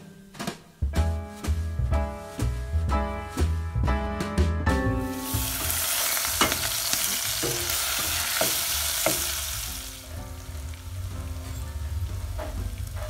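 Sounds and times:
background music: 0.0 - 13.0
onions sizzling in hot oil: 5.1 - 13.0
wooden spoon knocking pot: 7.4 - 9.4.

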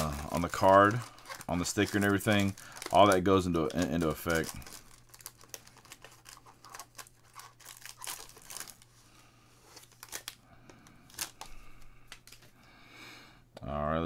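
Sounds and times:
foil pack tearing and crinkling: 0.0 - 8.9, 9.6 - 10.4, 11.1 - 12.4.

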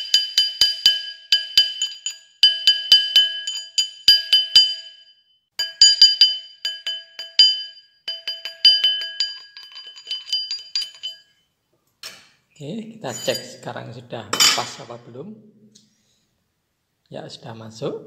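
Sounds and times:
mandrel metallic ringing: 0.0 - 5.0, 5.6 - 11.4, 13.1 - 13.7
hammer striking metal ring: 0.0 - 11.3.

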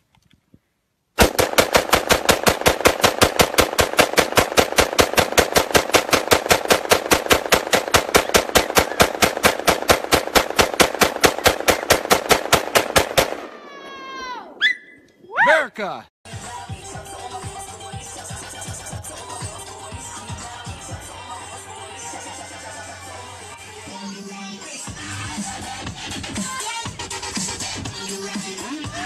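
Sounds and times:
rifle firing rapidly: 1.2 - 13.6.

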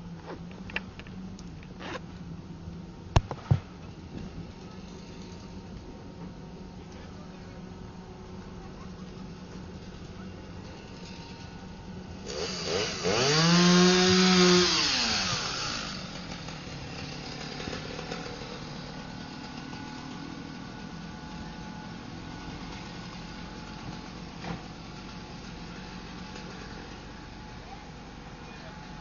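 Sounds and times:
chainsaw revving: 10.6 - 29.0.

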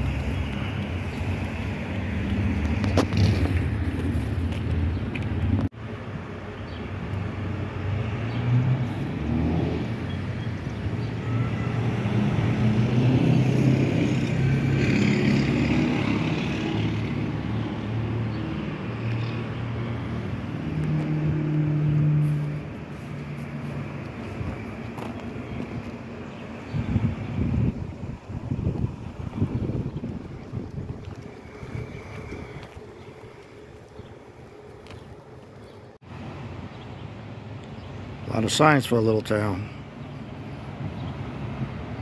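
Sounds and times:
cars passing: 0.0 - 42.0
engine tone: 9.8 - 17.2, 18.9 - 23.8.

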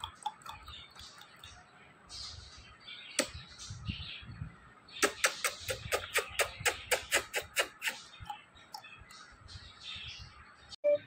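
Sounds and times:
wet kissing smacks: 5.0 - 8.0.

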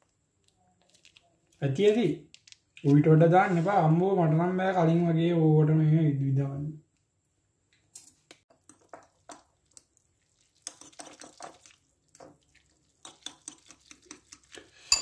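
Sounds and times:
fork stirring wet noodles: 8.5 - 15.0
fork clinking against bowl: 14.3 - 15.0.

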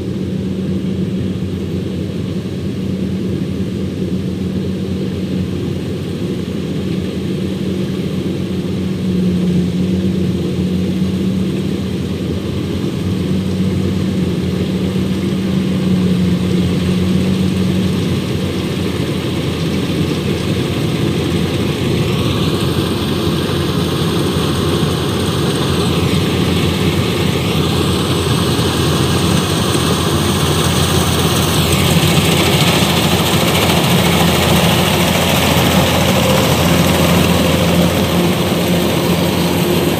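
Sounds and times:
combine harvester running: 0.0 - 39.9
high machine whine: 0.0 - 39.9.

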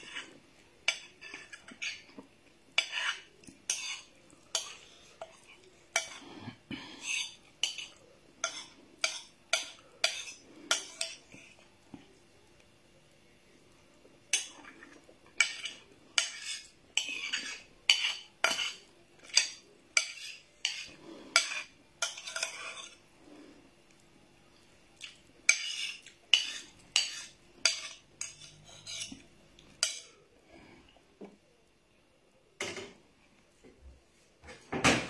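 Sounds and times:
metal spoon scraping ceramic dishes: 0.0 - 2.1, 2.8 - 6.3, 7.0 - 11.4, 14.3 - 23.0, 25.5 - 29.2.

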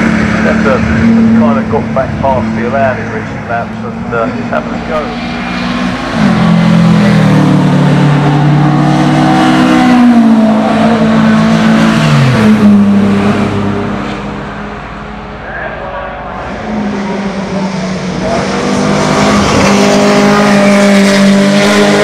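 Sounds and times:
racing cars passing at speed: 0.0 - 22.0.

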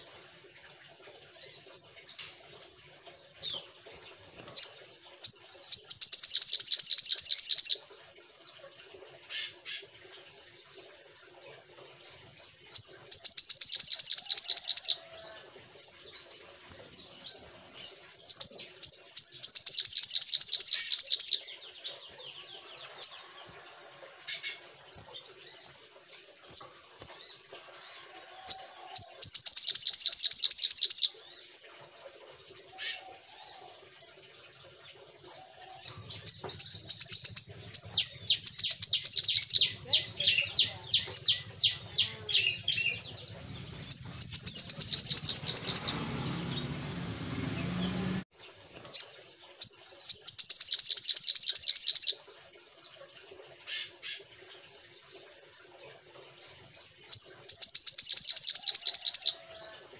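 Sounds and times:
bird trilling song: 3.4 - 15.0, 15.8 - 23.6, 28.6 - 31.2, 35.8 - 48.2, 49.0 - 52.7, 56.8 - 59.4
bird chirps: 4.3 - 7.8, 12.6 - 15.0, 17.3 - 23.6, 29.0 - 31.2, 35.8 - 48.2, 49.0 - 52.2, 57.0 - 59.4.

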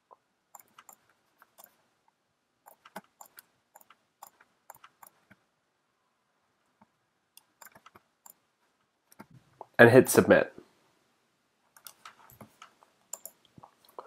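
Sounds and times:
computer mouse clicks: 0.5 - 1.8, 2.6 - 5.4, 6.8 - 8.4, 9.1 - 9.7, 11.7 - 14.0.

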